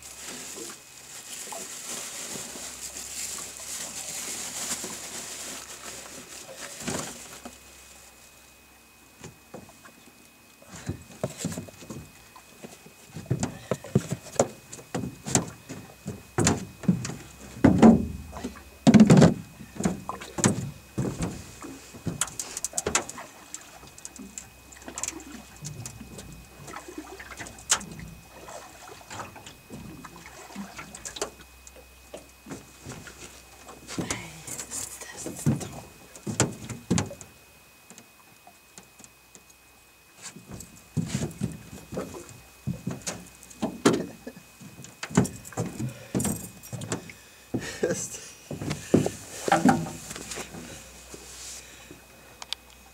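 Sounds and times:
knocks and thumps on boat hull: 13.2s - 21.4s, 48.5s - 50.0s.

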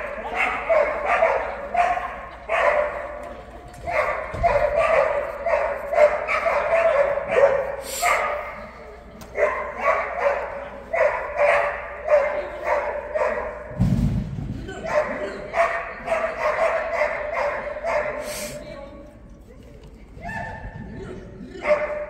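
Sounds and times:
dog barking: 0.0s - 3.2s, 3.8s - 8.6s, 9.3s - 13.7s, 14.8s - 18.6s, 21.6s - 22.0s.

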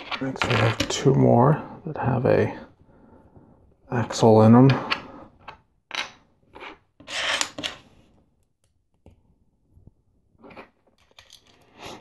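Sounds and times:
plastic pieces rubbing and scraping: 6.5s - 7.8s.

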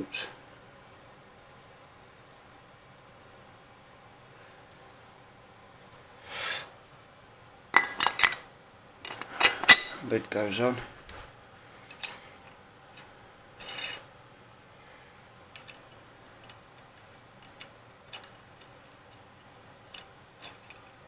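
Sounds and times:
metal nuts clicking: 7.8s - 8.4s, 9.0s - 10.1s, 11.1s - 11.3s, 13.0s - 14.0s, 19.9s - 21.0s.

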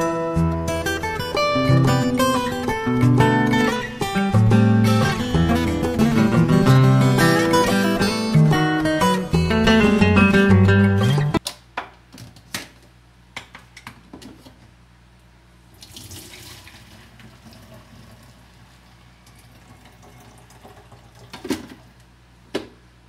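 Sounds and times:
liquid pouring into a pitcher: 15.7s - 21.9s.

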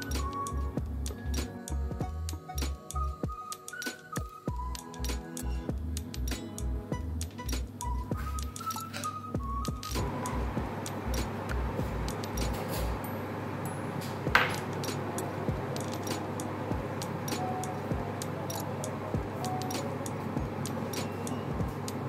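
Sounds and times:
low steady hum: 0.0s - 3.3s, 9.4s - 22.0s.

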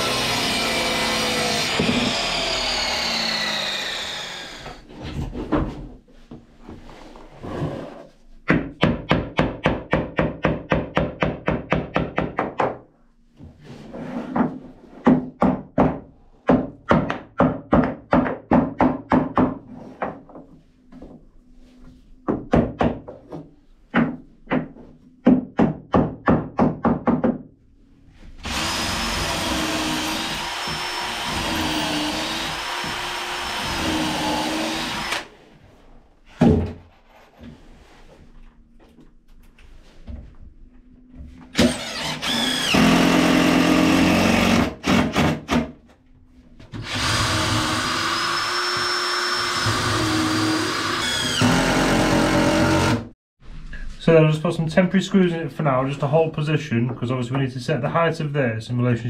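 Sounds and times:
cordless drill running: 0.0s - 4.8s, 28.4s - 35.3s, 41.6s - 44.4s, 46.8s - 53.0s.

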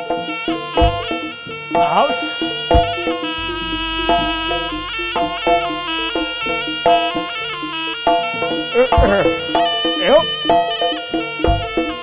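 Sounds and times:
gamelan ensemble: 0.0s - 8.6s
shawm melody: 0.0s - 12.0s.

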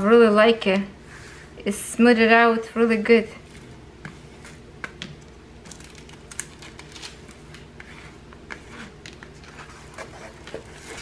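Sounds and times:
plastic film crinkling: 5.6s - 7.7s
plastic scraper rubbing: 7.7s - 11.0s.

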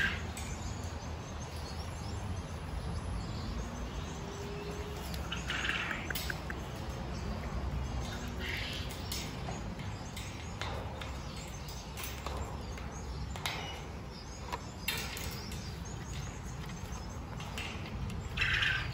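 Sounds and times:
clicks and scrapes on wire cage: 4.6s - 18.9s
harsh parrot calls: 18.4s - 18.9s.

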